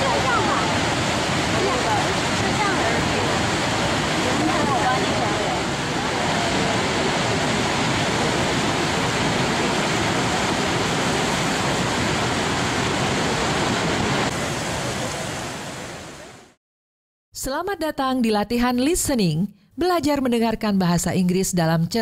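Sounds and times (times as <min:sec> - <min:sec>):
waterfall rushing: 0:00.0 - 0:16.6.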